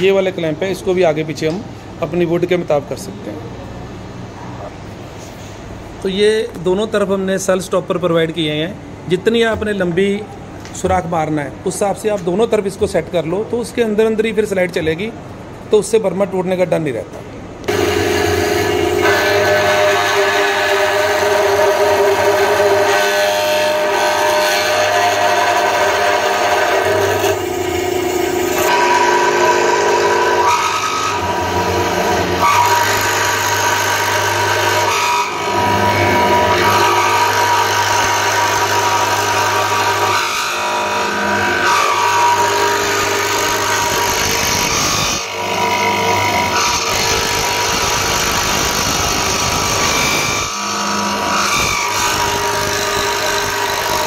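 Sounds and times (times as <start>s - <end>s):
electric motor humming: 17.6s - 54.0s
drill bit boring wood: 17.7s - 54.0s.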